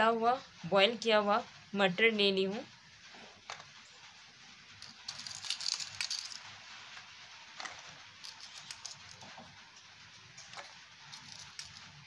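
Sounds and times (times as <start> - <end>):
spoon and bowls clinking: 4.8 - 6.4, 11.1 - 12.0.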